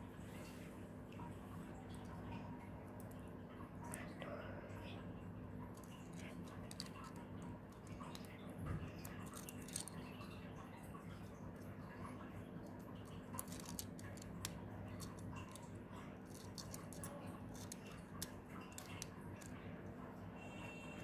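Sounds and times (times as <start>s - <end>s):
faint steady hum: 0.0s - 21.0s
plastic bricks clicking: 5.8s - 8.3s, 9.0s - 10.0s, 13.4s - 15.6s, 16.2s - 19.5s.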